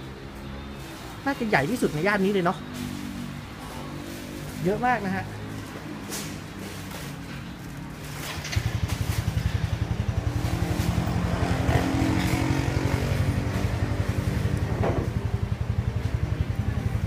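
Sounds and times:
small motorcycle engine puttering: 0:08.2 - 0:11.3.

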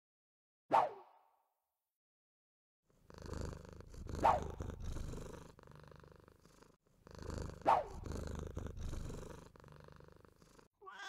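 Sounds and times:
cat purring: 0:02.9 - 0:10.8.

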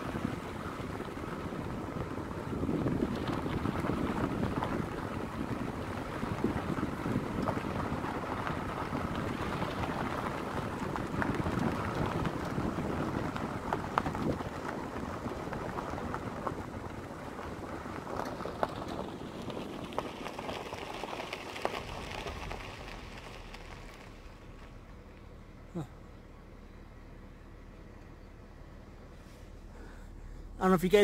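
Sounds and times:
wind on microphone: 0:00.0 - 0:17.0
gravel crunching: 0:00.0 - 0:31.0.

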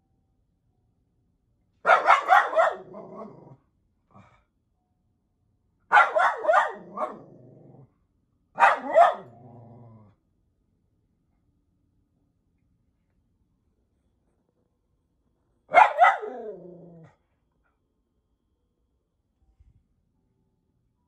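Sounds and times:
small dog barking: 0:01.8 - 0:03.6, 0:05.9 - 0:07.6, 0:08.6 - 0:09.6, 0:15.7 - 0:17.1
dog growling: 0:02.8 - 0:03.6, 0:06.8 - 0:07.9, 0:09.2 - 0:10.2, 0:16.2 - 0:17.2.

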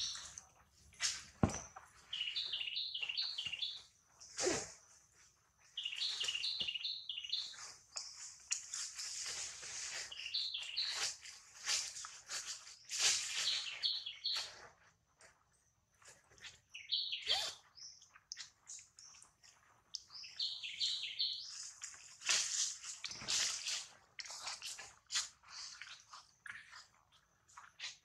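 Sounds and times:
high-pitched chirping calls: 0:16.8 - 0:17.6.

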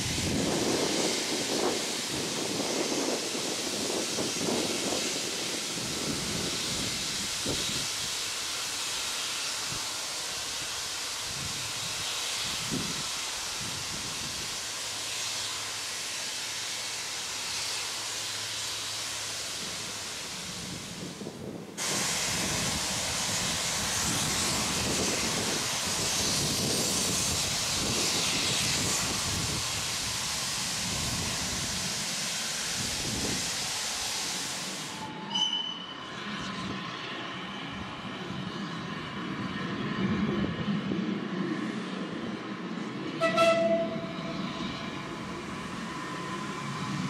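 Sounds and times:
steam hissing: 0:00.0 - 0:35.4, 0:43.2 - 0:47.0
train rumbling: 0:00.0 - 0:47.0
brief high tones: 0:43.2 - 0:44.1.

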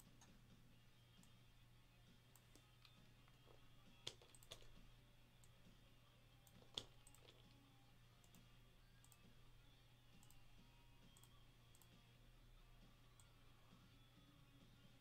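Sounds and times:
computer mouse clicks: 0:02.3 - 0:04.8, 0:06.4 - 0:07.6, 0:08.2 - 0:09.3, 0:10.2 - 0:10.4, 0:11.1 - 0:12.0.

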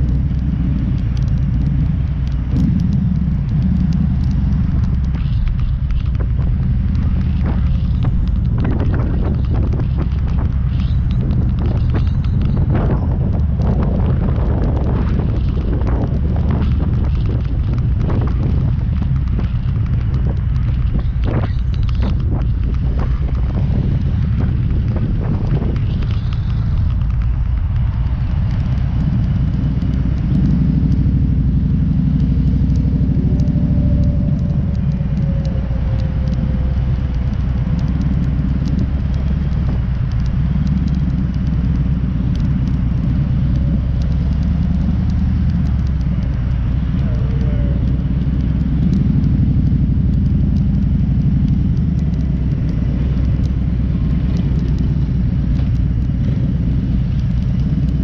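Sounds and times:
motorcycle engine rumbling: 0:00.0 - 0:58.0.

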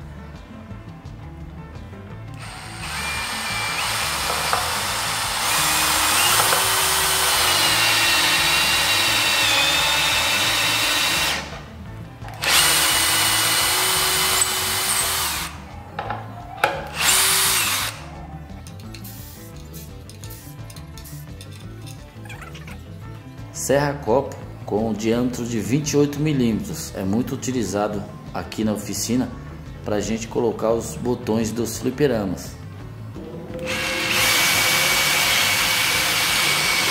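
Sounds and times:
cordless drill driving screw: 0:02.3 - 0:11.6, 0:12.3 - 0:15.6, 0:16.6 - 0:18.0, 0:33.7 - 0:36.9.

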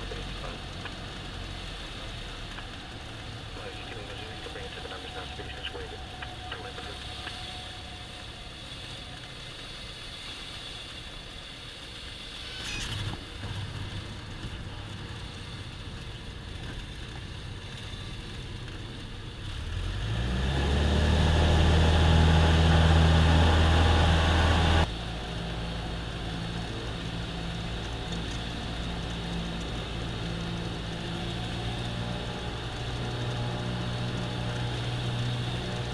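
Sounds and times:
aircraft engine inside cabin: 0:00.0 - 0:19.5, 0:21.2 - 0:35.9.

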